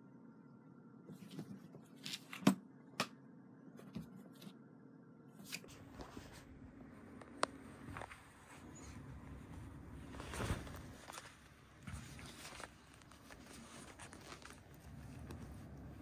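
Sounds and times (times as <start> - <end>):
paws scratching on fabric: 7.5 - 16.0.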